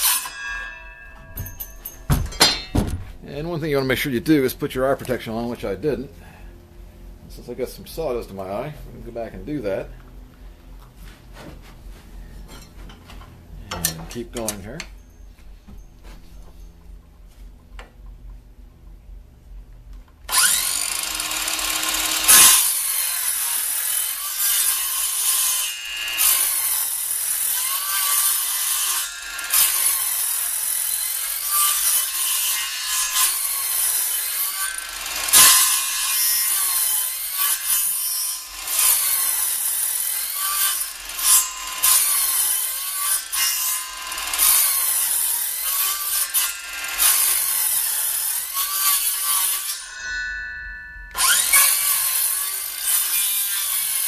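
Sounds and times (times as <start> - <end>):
circular saw cutting wood: 0.0 - 2.6, 20.3 - 54.0.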